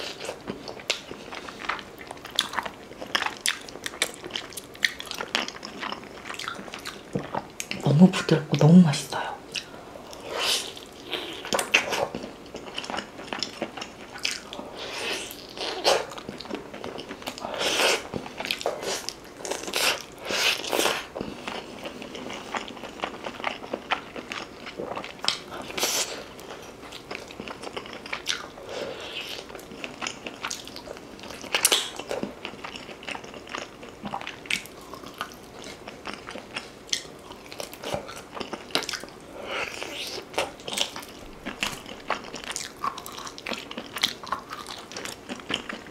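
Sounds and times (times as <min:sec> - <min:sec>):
biting and chewing meat: 0:09.6 - 0:45.9.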